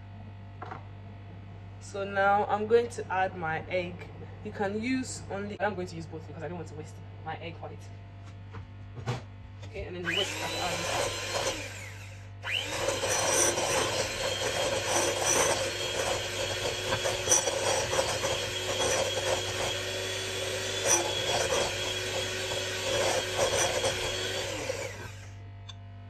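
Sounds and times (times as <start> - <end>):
electric hand mixer whisking: 9.9 - 25.4.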